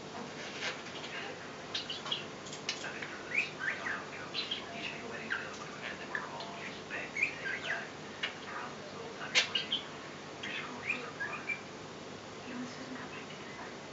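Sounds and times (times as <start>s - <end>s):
budgerigar chattering: 3.2s - 8.4s, 9.3s - 11.7s.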